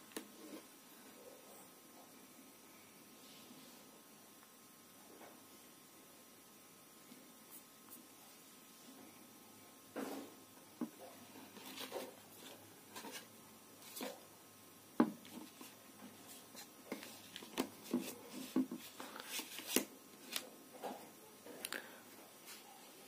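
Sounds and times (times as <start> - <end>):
hands tapping and rubbing phone: 15.0 - 20.4.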